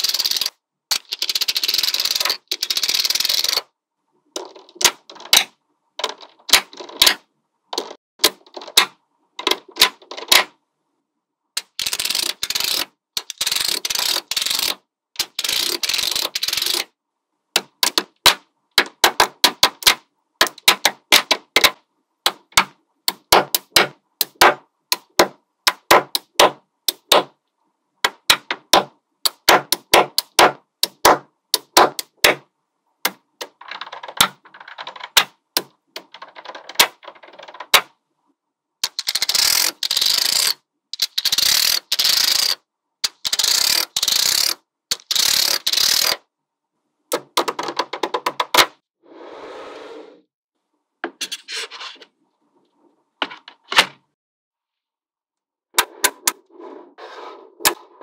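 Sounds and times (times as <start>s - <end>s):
magnetic balls clicking: 0.0s - 3.7s, 11.6s - 16.9s, 17.6s - 27.3s, 28.0s - 32.4s, 33.0s - 37.9s, 38.8s - 46.2s.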